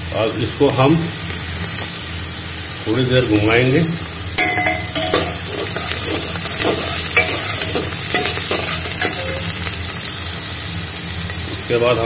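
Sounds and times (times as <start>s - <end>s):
onions sizzling in hot oil: 0.0s - 12.0s
ladle scraping a metal pot: 4.4s - 9.5s.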